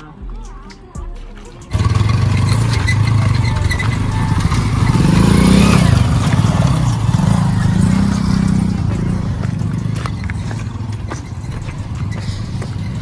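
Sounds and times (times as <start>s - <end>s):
motorcycle engines revving: 0.0s - 13.0s.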